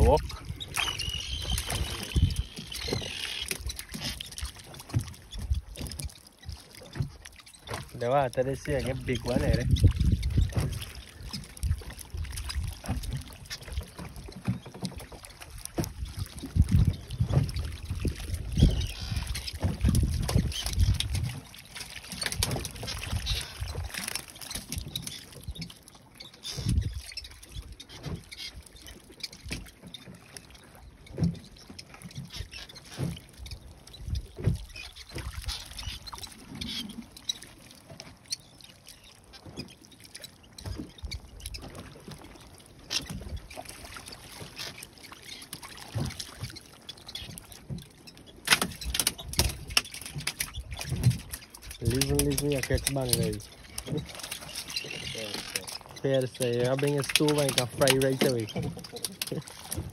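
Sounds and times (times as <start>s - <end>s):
fishing net rustling: 0.0s - 5.2s, 48.4s - 59.9s
water splashing: 0.0s - 59.9s
knocks against wooden hull: 8.7s - 11.9s.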